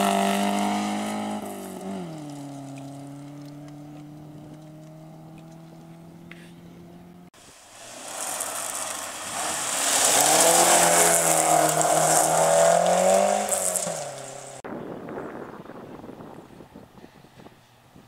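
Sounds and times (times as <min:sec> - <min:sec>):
rally car engine passing: 0:00.0 - 0:14.6
tyres hissing on gravel: 0:07.4 - 0:14.6.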